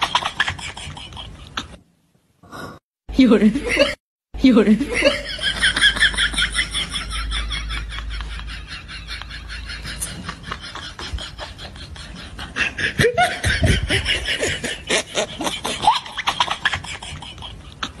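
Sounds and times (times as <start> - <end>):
person giggling: 4.8 - 18.0.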